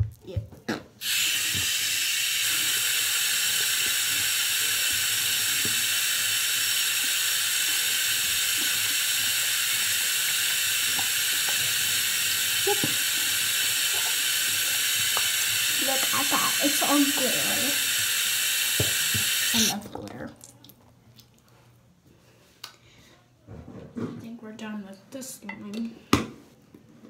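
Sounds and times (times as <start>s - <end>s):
tap water running: 1.0s - 20.6s.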